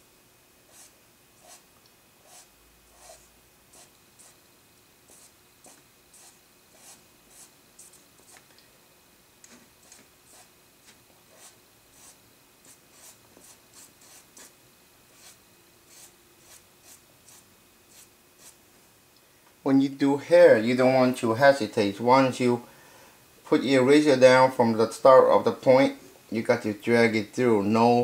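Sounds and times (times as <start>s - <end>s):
pencil scratching on paper: 0.7s - 1.6s, 2.2s - 4.4s, 5.1s - 8.4s, 9.8s - 14.5s, 15.2s - 18.6s.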